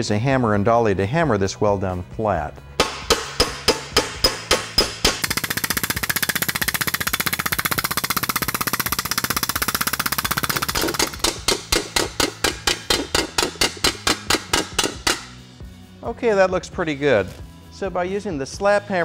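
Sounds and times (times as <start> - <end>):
hand hammer striking aluminum: 2.8 - 15.4
rapid machine hammering on metal: 2.8 - 15.4.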